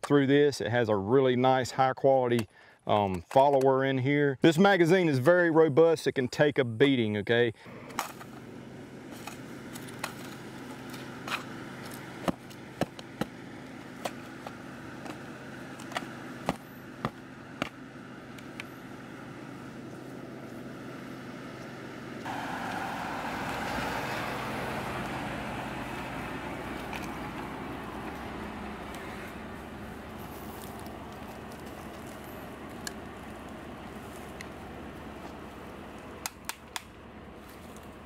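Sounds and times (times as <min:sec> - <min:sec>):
magazine clicks and taps: 0:36.2 - 0:36.9.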